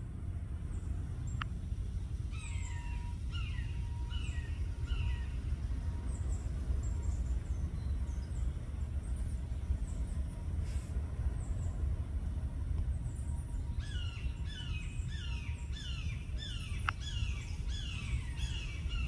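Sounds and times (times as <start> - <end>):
steady low rumble: 0.0 - 19.0
bird harsh falling calls: 13.8 - 19.0.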